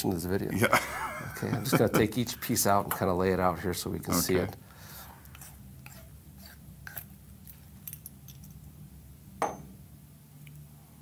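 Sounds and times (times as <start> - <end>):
steady low hum: 0.0 - 11.0
metal parts clicking and clinking: 6.9 - 8.7.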